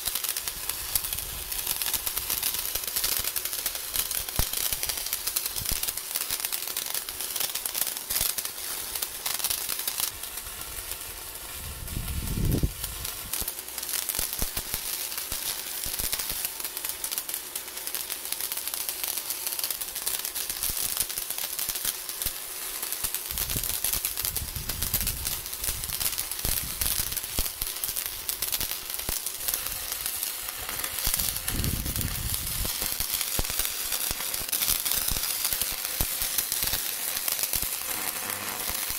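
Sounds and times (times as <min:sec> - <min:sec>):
welding arc crackling: 0:00.0 - 0:38.9.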